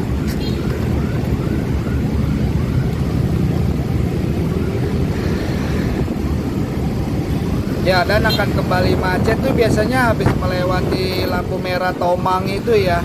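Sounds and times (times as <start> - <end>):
road noise: 0.0 - 13.0
wind rush: 0.0 - 13.0.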